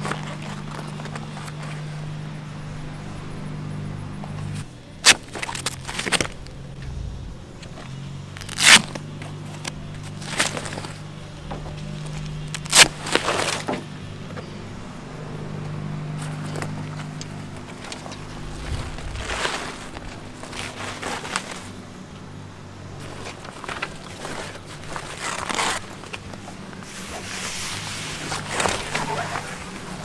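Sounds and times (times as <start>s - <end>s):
low steady hum: 0.0s - 22.6s
hook-and-loop straps ripping: 8.4s - 9.0s, 12.5s - 13.4s, 24.9s - 26.0s.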